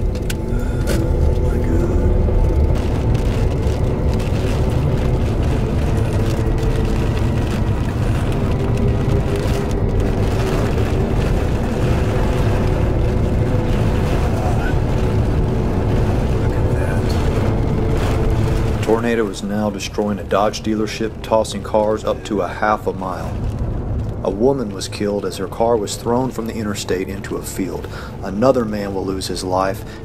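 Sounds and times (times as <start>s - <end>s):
car engine and tyres rumbling: 0.0s - 30.0s
faint hum tones: 0.0s - 30.0s.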